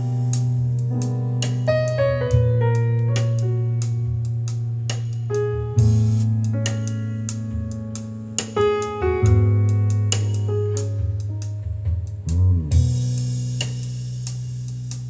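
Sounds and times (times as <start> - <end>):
keyboard melody: 0.0 - 13.5
deep sustained bass: 9.3 - 15.0.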